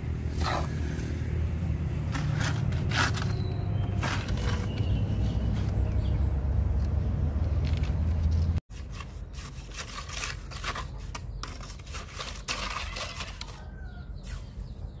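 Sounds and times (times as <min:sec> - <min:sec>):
trowel scraping wet mortar: 0:00.3 - 0:01.2, 0:02.1 - 0:05.8, 0:08.7 - 0:14.6.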